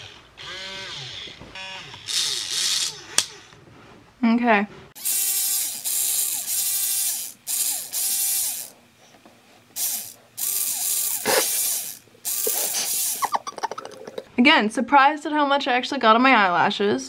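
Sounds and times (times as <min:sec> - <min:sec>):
robot arm motors whirring: 0:00.0 - 0:03.6, 0:05.0 - 0:08.8, 0:09.7 - 0:13.5.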